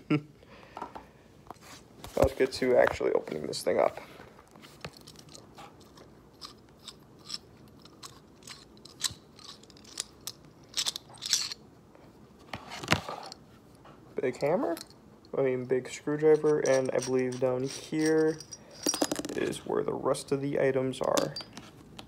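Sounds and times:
metal tool clicks and scrapes: 4.9 - 11.6, 16.3 - 19.2.

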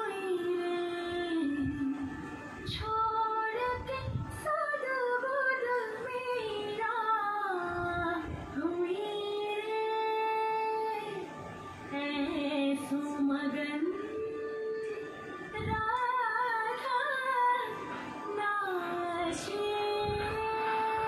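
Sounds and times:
woman singing: 0.0 - 21.0.

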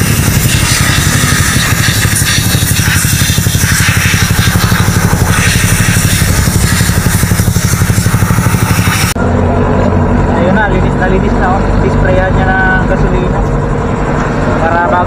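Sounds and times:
pressure spray gun hissing: 0.0 - 9.2
rapidly pulsing engine chug: 0.0 - 15.0.

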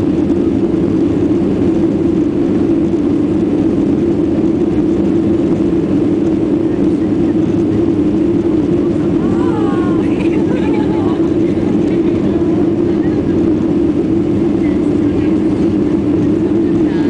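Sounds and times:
airplane cabin engine drone: 0.0 - 17.0.

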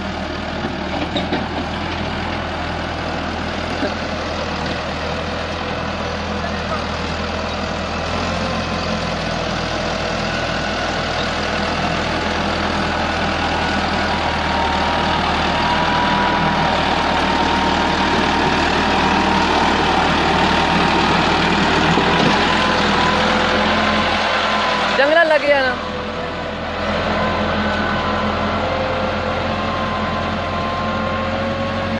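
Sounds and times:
tractor diesel engine under load: 0.0 - 31.9.

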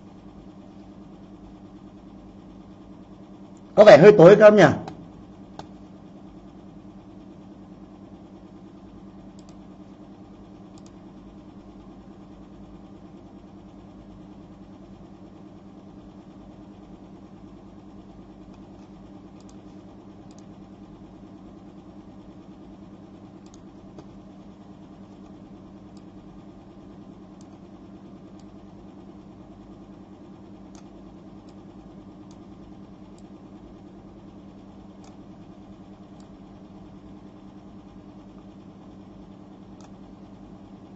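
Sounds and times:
low mechanical hum: 0.0 - 40.9
faint clicks: 9.3 - 9.6, 10.7 - 11.0, 20.2 - 20.5, 30.7 - 31.6, 35.0 - 35.2.

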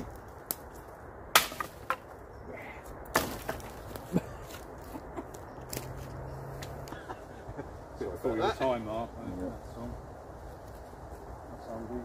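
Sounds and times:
dry sticks cracking and clattering: 0.0 - 7.2, 10.5 - 11.3.

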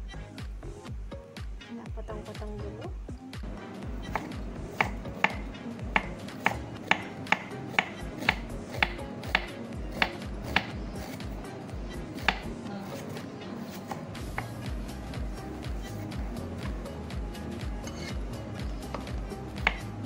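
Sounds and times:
cleaver chopping on wooden block: 4.0 - 11.4, 12.0 - 14.7, 18.9 - 19.9.

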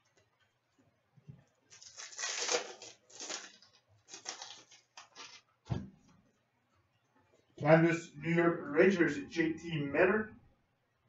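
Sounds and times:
foil wrapper crinkling: 1.7 - 5.5.

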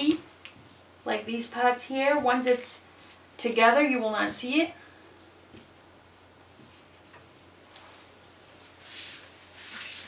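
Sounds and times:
fabric rustling on plastic: 5.1 - 10.0.

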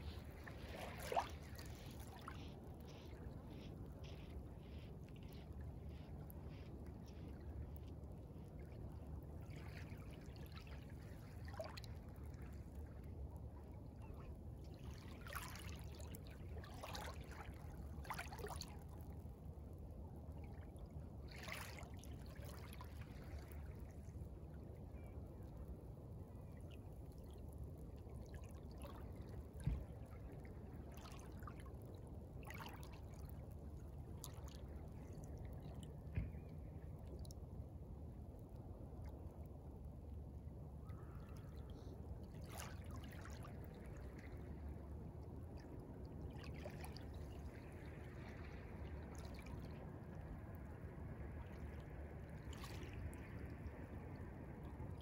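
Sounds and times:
small waves lapping on pebbles: 0.0 - 7.2
faint low rumble: 0.0 - 55.0.

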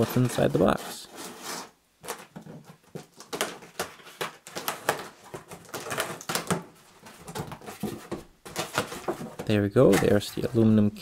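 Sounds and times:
cardboard flaps rustling: 0.0 - 10.8
packing tape being slit: 3.0 - 6.7.

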